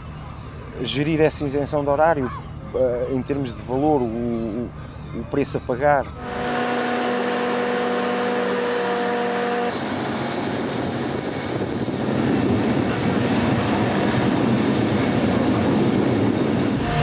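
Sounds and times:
deck machinery running: 0:06.1 - 0:17.0.

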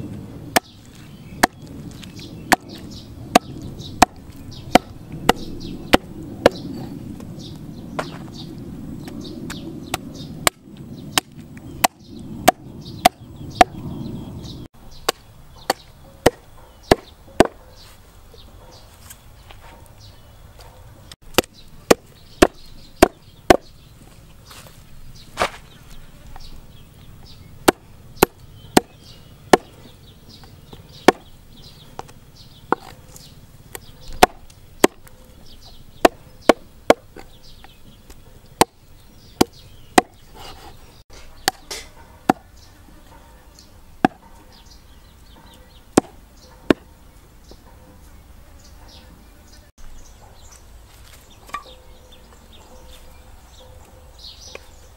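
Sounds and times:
cleaver chopping on wooden block: 0:00.5 - 0:00.8, 0:01.4 - 0:01.7, 0:02.5 - 0:06.6, 0:09.9 - 0:13.8, 0:15.0 - 0:17.6, 0:21.3 - 0:23.7, 0:27.6 - 0:29.8, 0:31.0 - 0:31.3, 0:32.7 - 0:33.0, 0:33.7 - 0:35.1, 0:36.0 - 0:37.4, 0:38.6 - 0:38.8, 0:39.4 - 0:40.6, 0:41.4 - 0:42.5, 0:44.0 - 0:44.2, 0:45.9 - 0:46.9.

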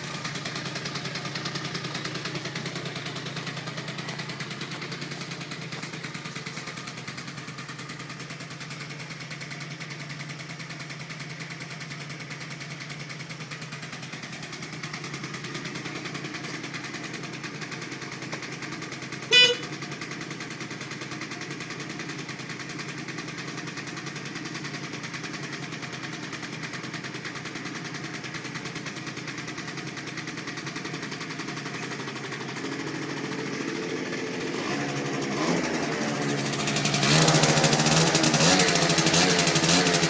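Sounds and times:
scooter engine idling and revving: 0:00.0 - 0:40.0
short horn beep: 0:19.3 - 0:19.7.

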